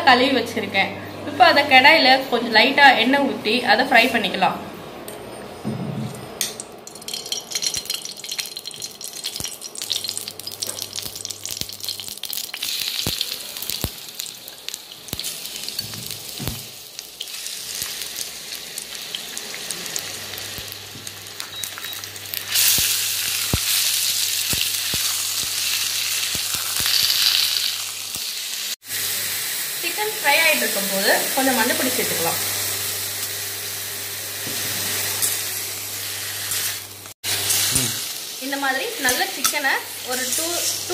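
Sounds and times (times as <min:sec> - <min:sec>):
hot oil sizzling and popping: 0:06.4 - 0:40.9.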